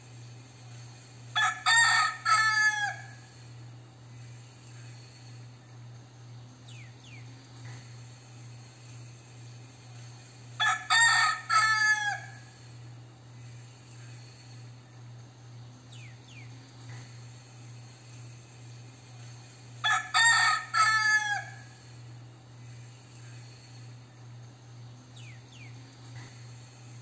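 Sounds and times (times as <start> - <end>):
rooster crowing: 1.3 - 3.5, 10.6 - 12.7, 19.8 - 21.9.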